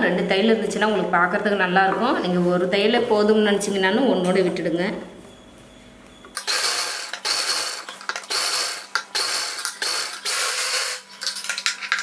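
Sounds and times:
sewing machine stitching: 0:06.4 - 0:11.0.

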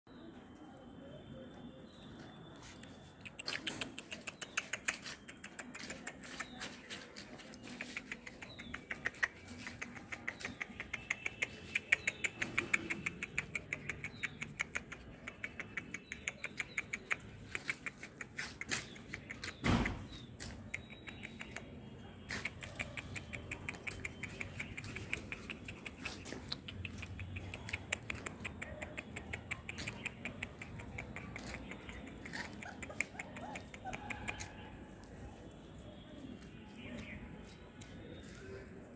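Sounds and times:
puppy claws clicking on concrete: 0:02.6 - 0:35.5
sharp knock: 0:19.6 - 0:20.1.

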